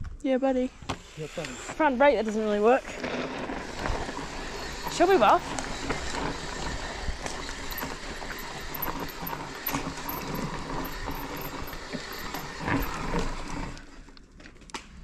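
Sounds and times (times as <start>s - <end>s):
bike freehub ratchet clicking: 4.2s - 13.0s.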